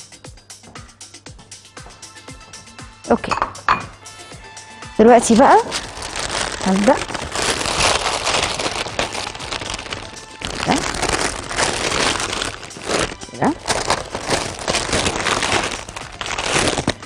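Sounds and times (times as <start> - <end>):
music: 0.0 - 17.0
baking paper crinkling: 5.3 - 17.0.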